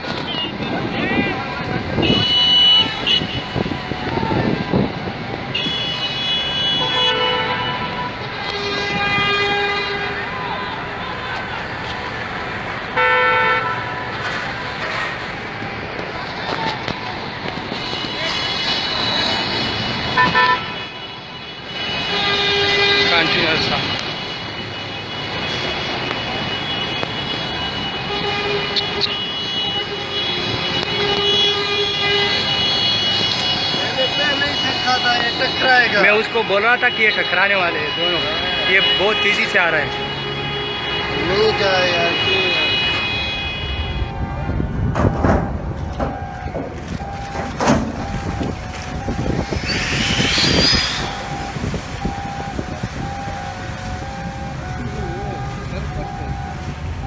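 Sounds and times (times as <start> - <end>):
horns sounding: 0.2 - 12.1, 12.8 - 14.8, 17.2 - 57.0
high-pitched steady tone: 48.0 - 56.6.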